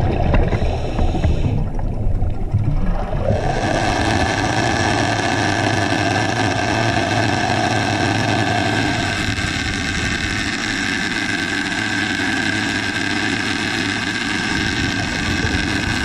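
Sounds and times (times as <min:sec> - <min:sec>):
clicking rumble: 0:00.0 - 0:16.0
motor drone underwater: 0:00.0 - 0:16.0.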